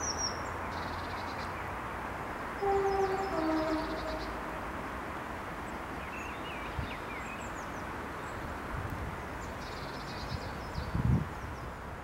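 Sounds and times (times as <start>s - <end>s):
outdoor background hiss: 0.0s - 12.0s
faint bird chirps: 2.6s - 4.5s.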